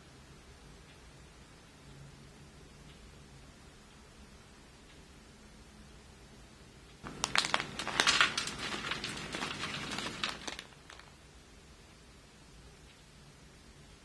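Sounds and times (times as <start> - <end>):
plastic pouch crinkling: 7.0 - 11.2.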